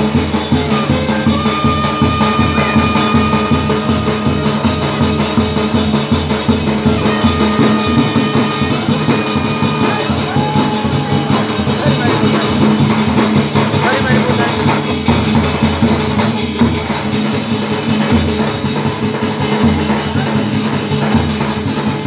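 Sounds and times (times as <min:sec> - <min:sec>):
hand-beaten barrel drum: 0:00.0 - 0:22.0
large drum beat: 0:00.0 - 0:22.0
long held ringing tones: 0:01.3 - 0:12.4.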